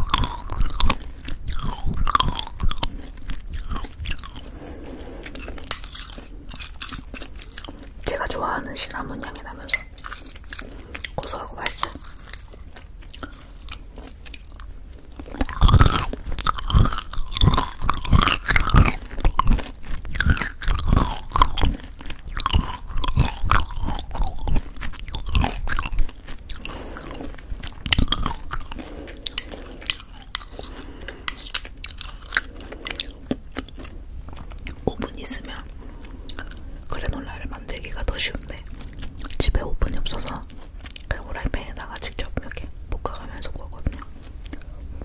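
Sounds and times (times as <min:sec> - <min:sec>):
chewing crunchy granola: 0:00.0 - 0:45.0.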